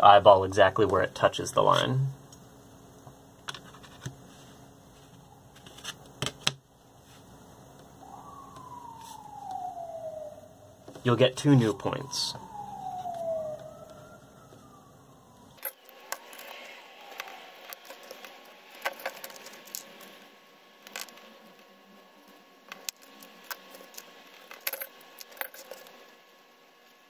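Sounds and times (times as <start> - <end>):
marker pen handled on cardboard: 3.5 - 7.3.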